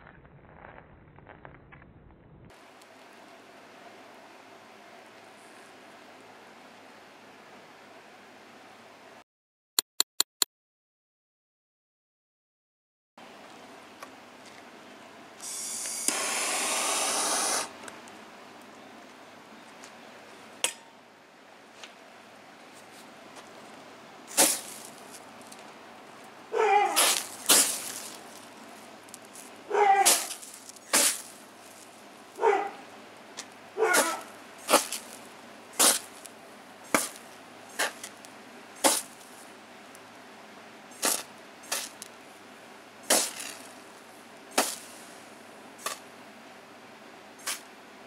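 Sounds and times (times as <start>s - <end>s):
water spraying on burning metal: 15.4s - 17.7s.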